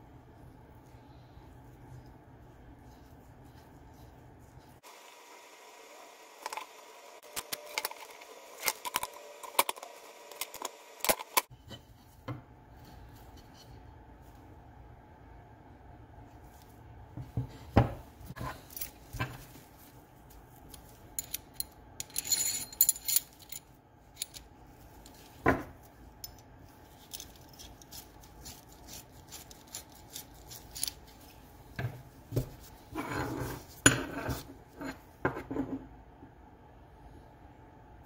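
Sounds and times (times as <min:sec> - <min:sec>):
small steel parts clinking: 0:21.2 - 0:24.5, 0:27.0 - 0:27.9.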